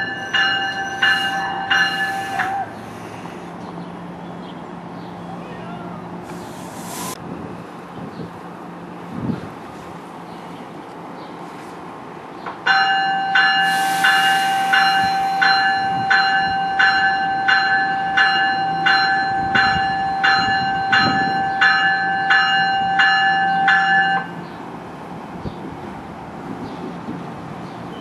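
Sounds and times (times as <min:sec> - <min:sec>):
railroad warning bell ringing: 0:00.0 - 0:03.2, 0:12.6 - 0:24.6
low rumble of arriving train: 0:00.0 - 0:28.0.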